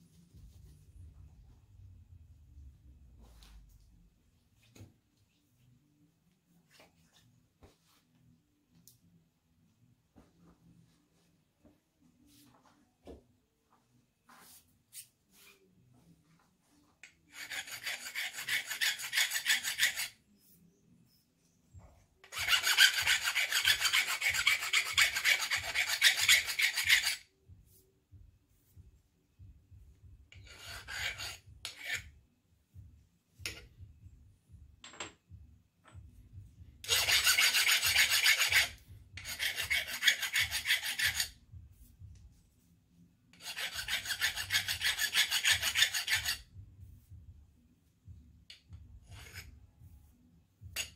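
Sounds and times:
hand file rasping on metal: 0:17.2 - 0:20.2, 0:22.2 - 0:27.3, 0:30.3 - 0:32.2, 0:36.8 - 0:41.4, 0:43.3 - 0:46.5, 0:48.5 - 0:49.6.

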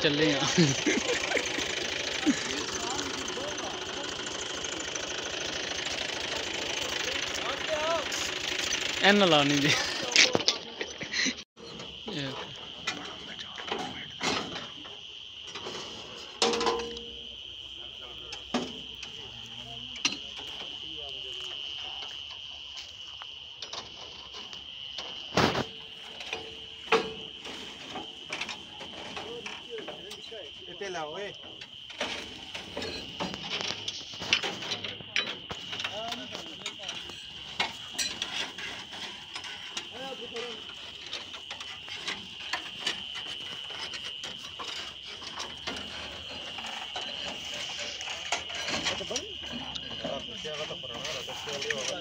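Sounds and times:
crickets chirring: 0:00.0 - 0:52.0.

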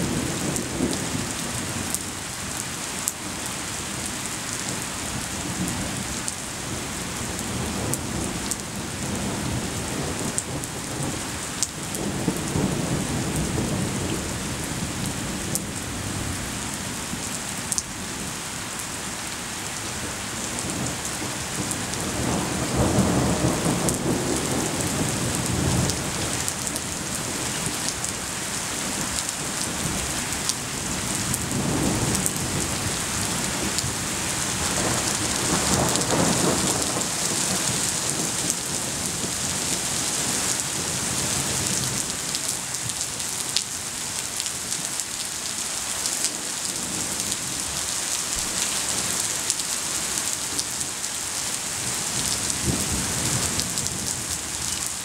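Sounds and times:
steady rain: 0:00.0 - 0:55.0
thunder rumbling: 0:20.5 - 0:28.2, 0:28.9 - 0:41.9.

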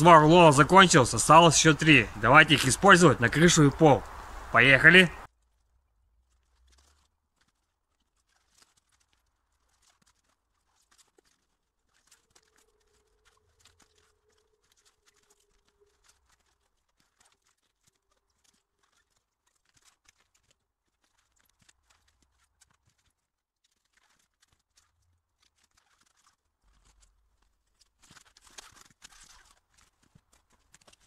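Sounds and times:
plastic film crackling: 0:06.2 - 0:31.0.

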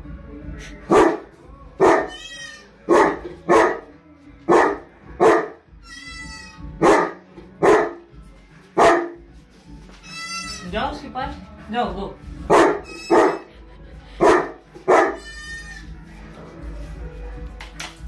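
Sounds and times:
dog barking: 0:00.9 - 0:02.2, 0:02.9 - 0:03.9, 0:04.5 - 0:05.6, 0:06.8 - 0:08.1, 0:08.8 - 0:09.2, 0:12.5 - 0:13.5, 0:14.2 - 0:15.2.

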